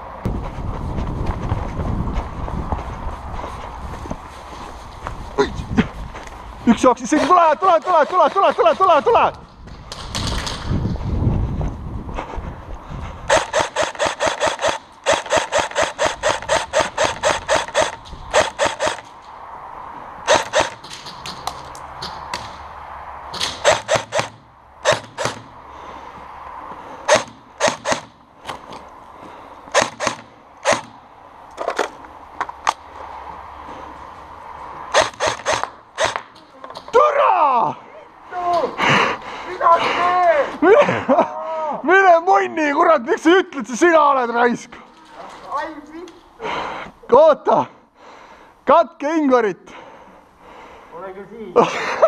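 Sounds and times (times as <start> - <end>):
airsoft guns firing: 13.3 - 19.1, 20.3 - 21.0, 23.4 - 25.5, 27.1 - 28.2, 29.7 - 31.0, 34.9 - 36.3.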